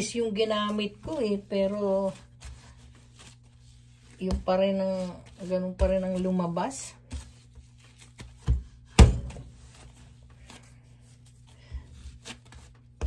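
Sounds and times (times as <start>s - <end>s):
dough thumping on cutting board: 8.4s - 9.5s.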